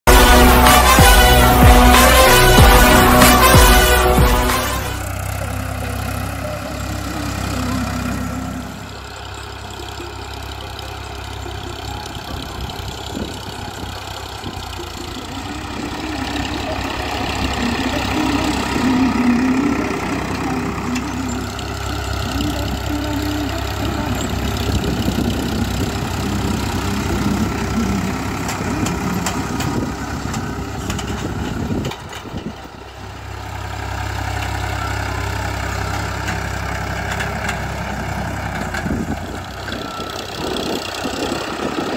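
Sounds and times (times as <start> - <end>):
tractor diesel engine under load: 0.0 - 41.9.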